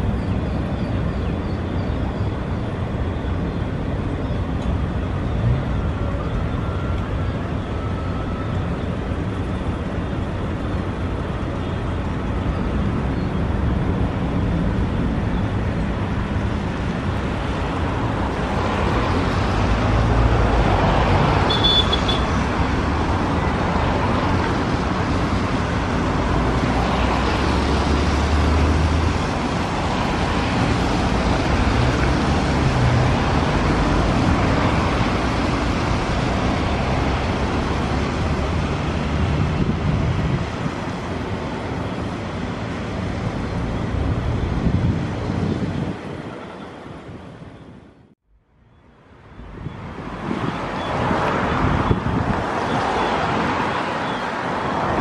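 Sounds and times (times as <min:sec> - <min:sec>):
jet engines rumbling: 0:00.0 - 0:48.2
wind buffeting microphone: 0:22.3 - 0:47.8, 0:49.2 - 0:55.0.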